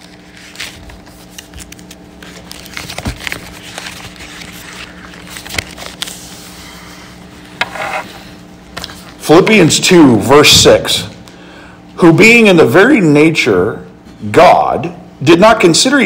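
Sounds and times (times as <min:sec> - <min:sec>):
paper pages rustling: 0:00.0 - 0:07.2
steady low hum: 0:00.0 - 0:16.0.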